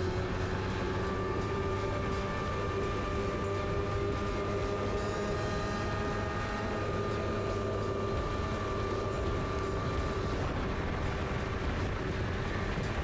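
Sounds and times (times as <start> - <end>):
snowmobile engine drone: 0.0 - 13.0
snowmobile track rumble: 0.0 - 13.0.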